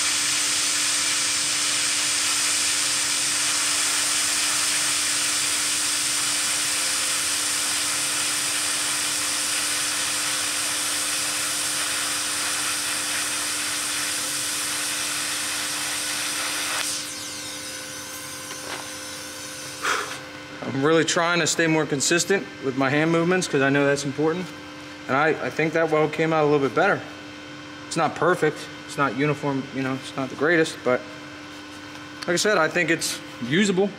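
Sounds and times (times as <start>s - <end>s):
welding arc hissing: 0.0s - 20.3s
steady hum: 0.0s - 33.9s.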